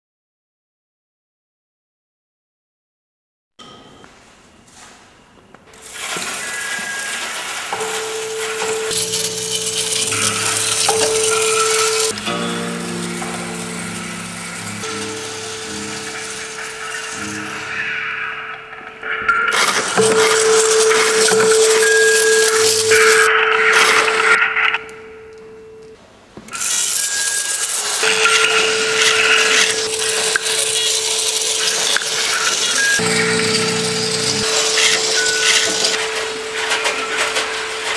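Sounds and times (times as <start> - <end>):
steady held tone: 6.3 - 37.9
low hum: 7.8 - 26.0, 28.0 - 37.9.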